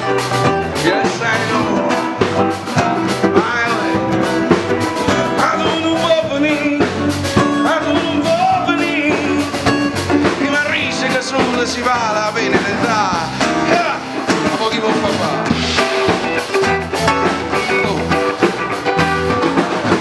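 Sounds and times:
electric guitars: 0.0s - 20.0s
man singing into microphone: 0.7s - 15.6s.

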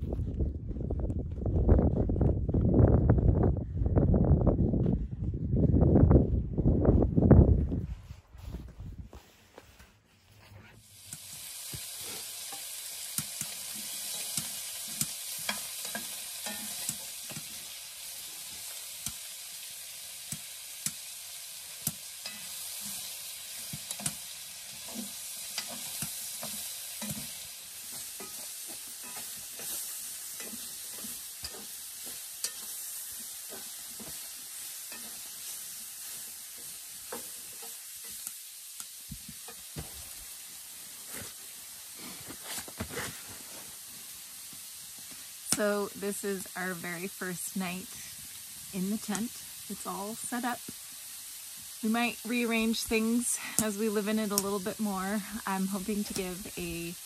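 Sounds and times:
food sizzling in a frying pan: 10.8s - 57.0s
utensil scraping and tapping pan: 12.5s - 17.5s, 24.8s - 34.2s.

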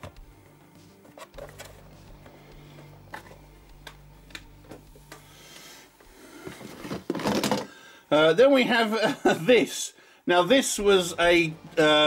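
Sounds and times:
packaging clicks and taps: 3.0s - 5.2s.

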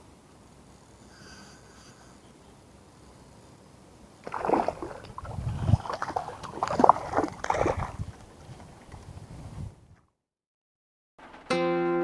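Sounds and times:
fish splashing in water: 4.2s - 8.8s.

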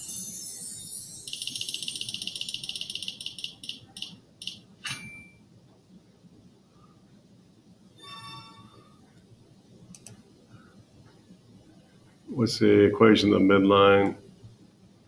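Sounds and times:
spinner ticking: 0.0s - 4.6s
bright ding: 4.8s - 5.4s.

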